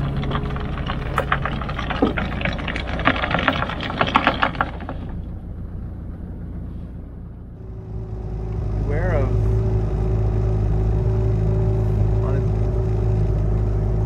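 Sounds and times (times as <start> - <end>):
clicks and knocks of gear: 0.0 - 5.3
low steady hum: 0.0 - 14.0.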